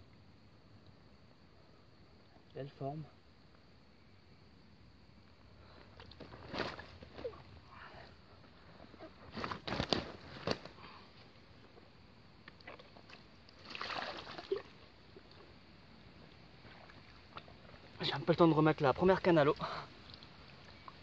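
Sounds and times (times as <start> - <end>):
water sloshing and splashing: 12.7 - 15.4, 16.4 - 18.0.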